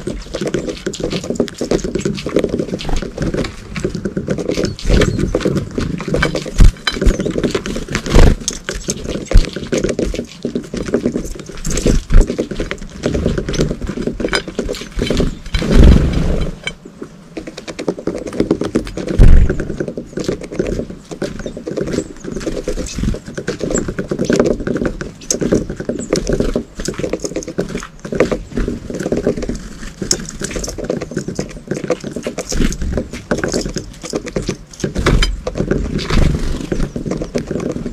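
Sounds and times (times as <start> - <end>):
birds pecking on ceramic plate: 0.0 - 37.9
low thumps: 13.0 - 16.9.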